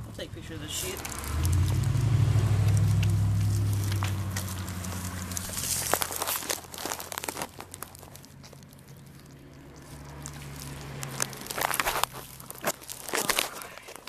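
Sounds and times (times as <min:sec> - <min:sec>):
crackling and rustling on bedding: 0:00.7 - 0:14.0.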